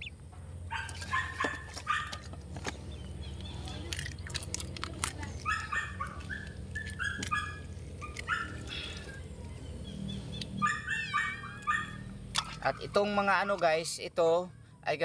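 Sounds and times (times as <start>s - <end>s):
wet clicks from handling fish: 3.4s - 7.4s
small animal high-pitched calls: 10.5s - 12.2s.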